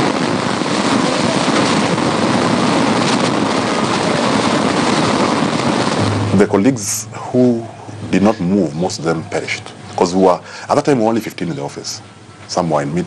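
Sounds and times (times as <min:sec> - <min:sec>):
loud rushing noise: 0:00.0 - 0:09.4
low rumble: 0:05.0 - 0:08.8.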